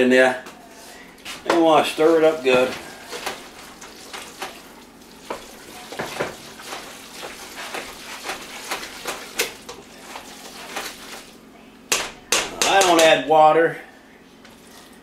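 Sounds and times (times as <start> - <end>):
pot sizzling: 1.8 - 11.5.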